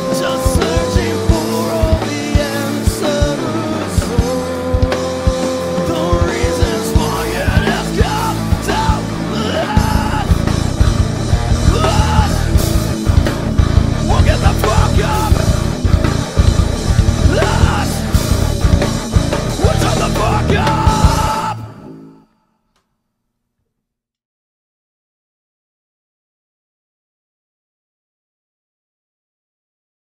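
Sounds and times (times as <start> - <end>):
person singing: 0.0 - 13.4, 14.0 - 18.8, 19.4 - 22.3
drum kit with cymbals: 0.0 - 21.6
bass guitar: 0.0 - 22.2
distorted electric guitars: 0.0 - 22.4.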